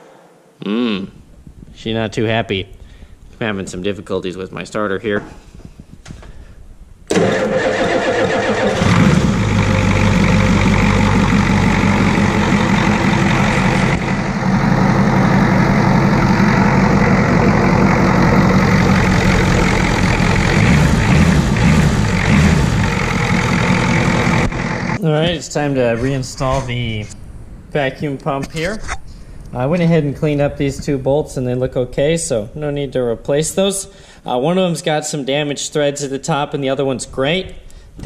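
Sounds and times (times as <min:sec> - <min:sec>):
diesel engine starting and idling: 0:07.1 - 0:25.0.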